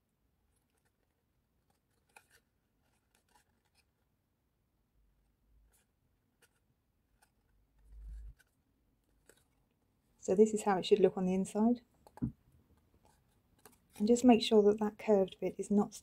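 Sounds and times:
card stock rustling and crinkling: 0.5s - 4.1s, 5.7s - 9.8s, 12.0s - 14.3s.

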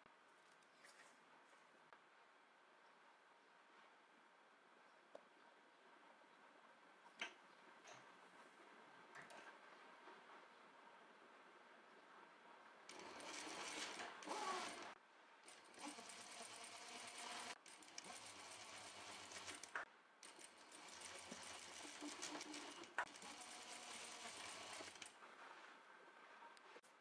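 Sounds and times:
sewing machine stitching: 12.9s - 25.2s.

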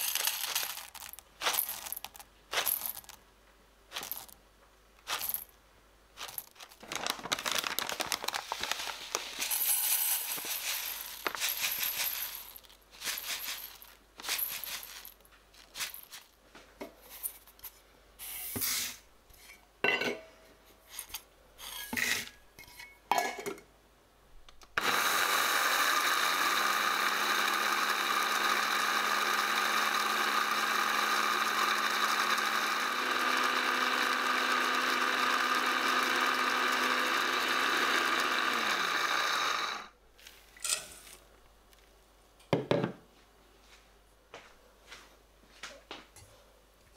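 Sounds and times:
blender motor grinding: 0.0s - 1.1s, 24.8s - 39.9s
seeds rattling into plastic jar: 0.0s - 3.2s, 3.9s - 4.4s, 5.0s - 5.6s, 6.2s - 16.4s.

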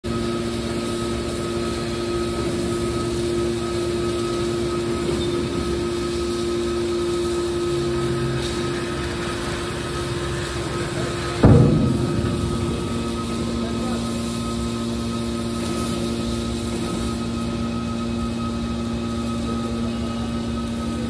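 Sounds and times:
hydraulic pump hum and whine: 0.0s - 21.0s.

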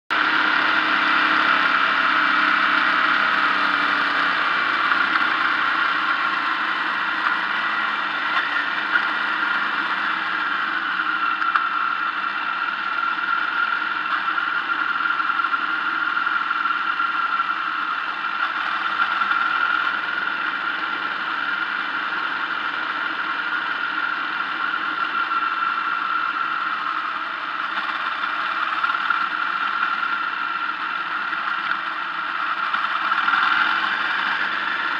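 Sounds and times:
car engine and road noise: 0.1s - 34.9s
steady high whine: 0.1s - 34.9s.

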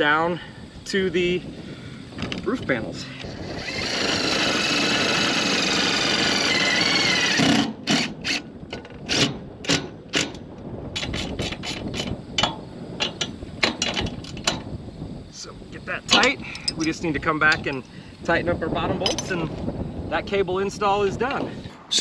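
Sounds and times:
cordless drill driving screw: 3.2s - 8.5s
sharp clicks and knocks: 8.7s - 10.4s, 11.0s - 14.7s.

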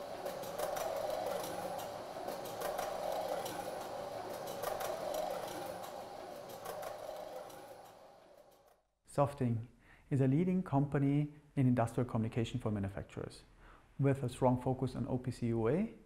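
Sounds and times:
shuttles whirring along track: 0.0s - 8.8s.

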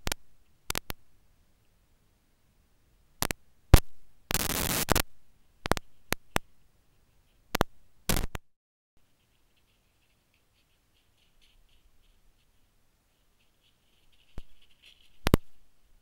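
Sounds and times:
sharp crackles: 0.0s - 1.1s, 3.2s - 6.6s, 7.5s - 8.5s, 9.2s - 16.0s
static hiss bursts: 3.2s - 5.1s, 8.1s - 8.4s.

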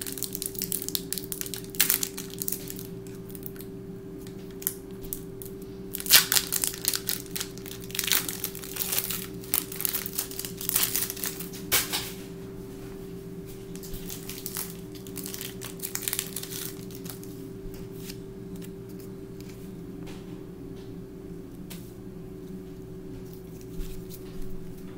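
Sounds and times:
foil wrapper crinkling and tearing: 0.0s - 11.9s, 13.6s - 19.1s.

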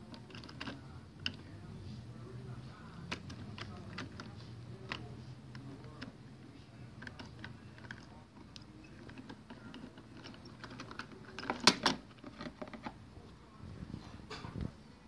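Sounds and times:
plastic toy clicks and rattles: 0.0s - 1.5s, 3.0s - 6.2s, 6.9s - 13.0s
sharp plastic clacks: 7.0s - 13.0s.

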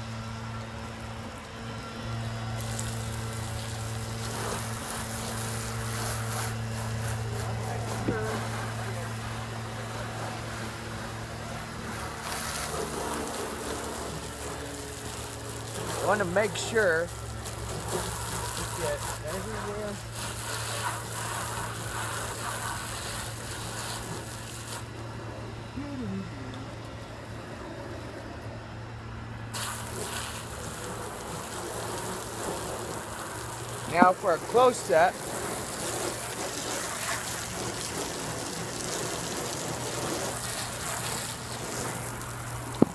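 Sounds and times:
hose spraying water on car: 0.0s - 25.6s, 29.3s - 42.9s
low hum: 20.9s - 30.0s.

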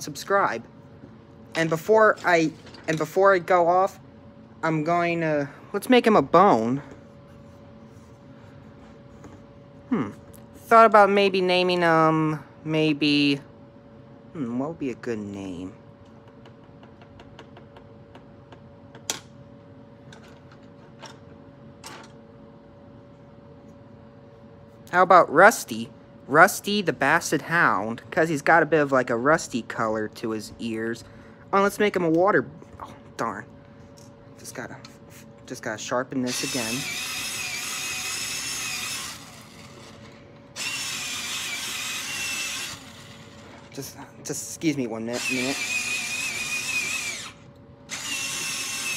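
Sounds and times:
faint steady hum: 0.0s - 48.9s
electric pencil sharpener whining: 36.3s - 43.7s, 45.1s - 48.9s.

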